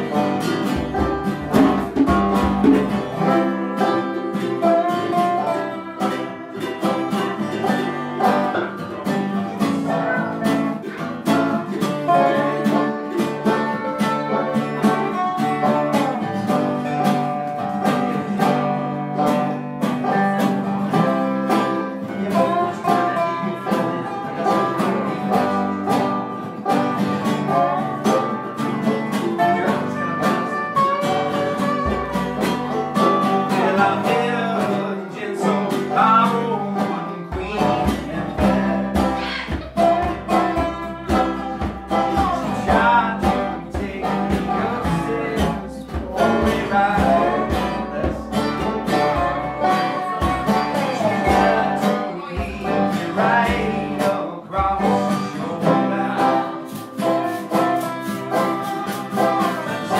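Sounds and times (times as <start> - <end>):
bluegrass string picking: 0.0 - 59.9.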